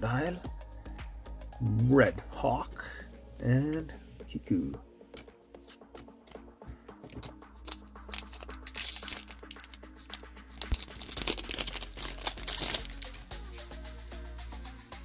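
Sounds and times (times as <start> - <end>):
cards clicking: 5.2 - 13.3
plastic wrapper crinkling and tearing: 7.0 - 13.3.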